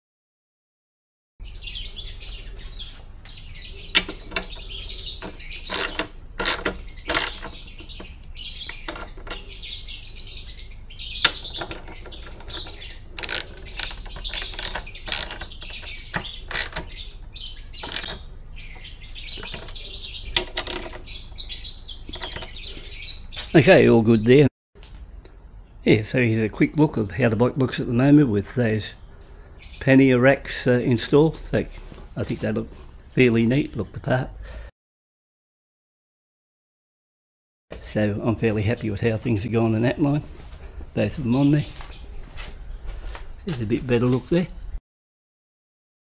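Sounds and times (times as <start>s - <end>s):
birds chirping: 1.4s - 34.7s, 37.7s - 44.8s
ratchet wrench clicking: 13.2s - 15.4s, 16.5s - 16.8s, 17.8s - 18.2s.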